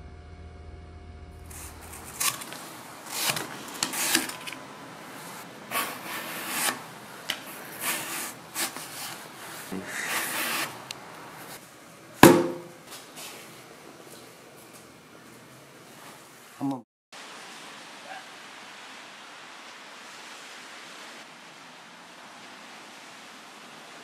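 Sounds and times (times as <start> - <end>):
knife slicing apple: 1.5 - 11.6, 12.2 - 12.7.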